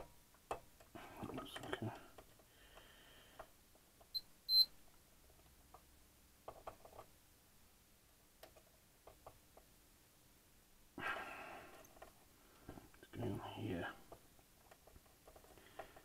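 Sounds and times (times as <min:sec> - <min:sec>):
short high beeps: 0:04.5 - 0:04.7.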